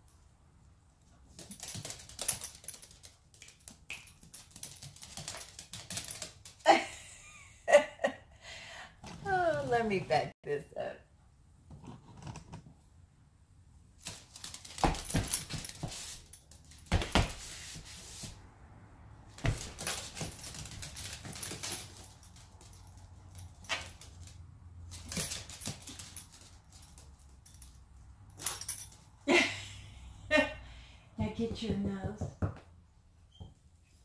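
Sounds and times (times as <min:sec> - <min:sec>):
dog claws clicking on hard floor: 0:01.3 - 0:06.6, 0:14.0 - 0:18.3, 0:19.4 - 0:27.8.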